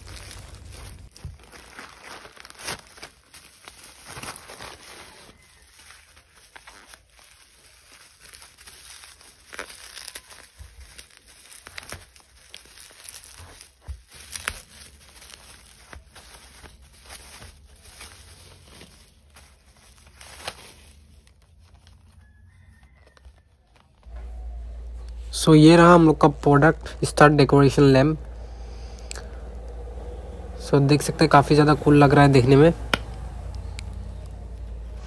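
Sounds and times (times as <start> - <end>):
knife cutting packaging: 0.0 - 22.2
plastic and bubble wrap crinkling: 0.0 - 30.4, 31.2 - 35.0
sharp snap: 32.8 - 33.2.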